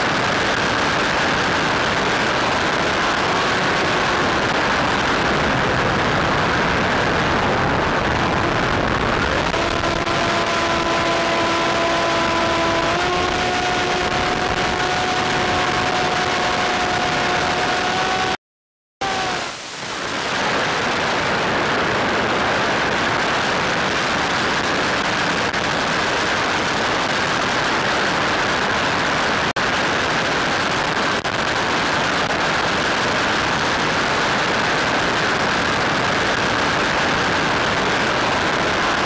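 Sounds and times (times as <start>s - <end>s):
steady hiss: 19.1s - 24.2s.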